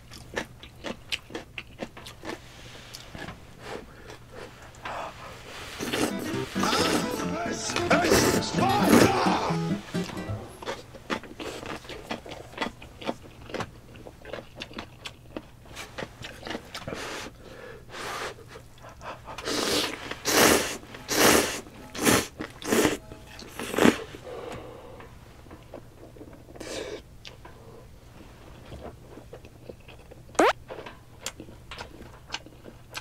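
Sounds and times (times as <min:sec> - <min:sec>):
wet chewing and mouth clicks: 0:00.0 - 0:03.3, 0:10.7 - 0:16.9, 0:29.2 - 0:33.0
loud noodle slurps: 0:19.5 - 0:23.0.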